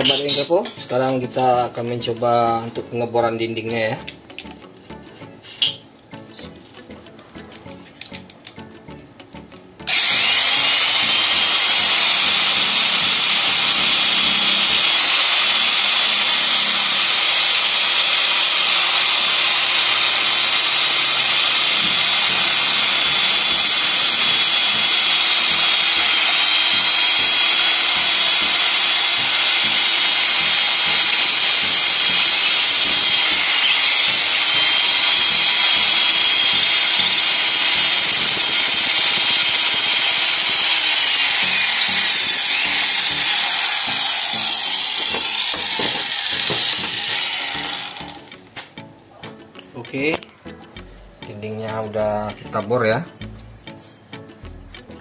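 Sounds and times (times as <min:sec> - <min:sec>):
electric drill boring into masonry: 0:00.0 - 0:01.5, 0:09.9 - 0:48.3.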